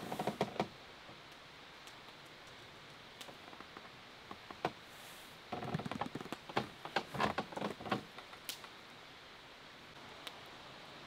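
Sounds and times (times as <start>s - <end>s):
campfire crackling and popping: 0.0s - 4.8s, 5.5s - 8.9s.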